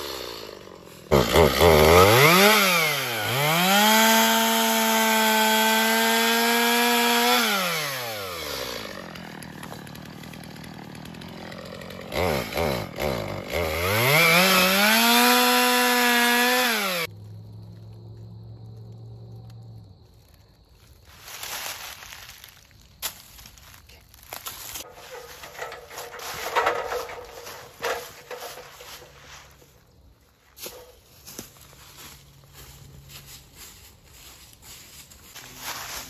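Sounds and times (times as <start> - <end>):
chainsaw revving and cutting: 0.0 - 17.1, 24.8 - 29.6.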